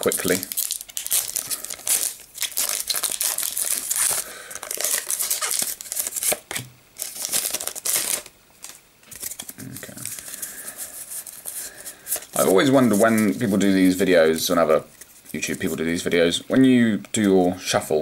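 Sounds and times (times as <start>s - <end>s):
foil wrapper tearing and crinkling: 0.0s - 13.8s.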